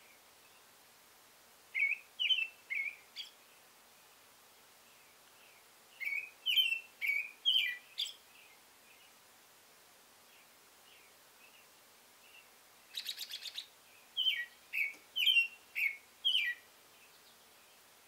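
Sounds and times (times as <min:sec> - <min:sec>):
robin singing whistled phrases: 0:01.8 - 0:03.4, 0:05.5 - 0:09.1, 0:12.3 - 0:17.4.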